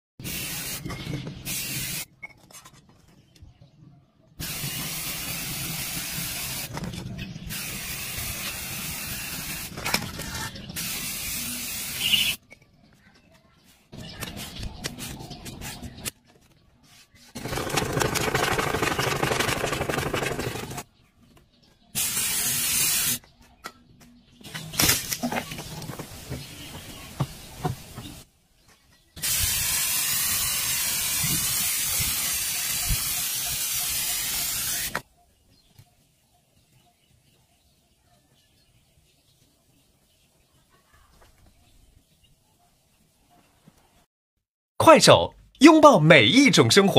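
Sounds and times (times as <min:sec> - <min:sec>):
spray paint can hissing: 0:00.2 - 0:02.1, 0:04.4 - 0:06.8, 0:07.5 - 0:12.4, 0:17.4 - 0:20.8, 0:22.0 - 0:23.2, 0:29.2 - 0:35.0.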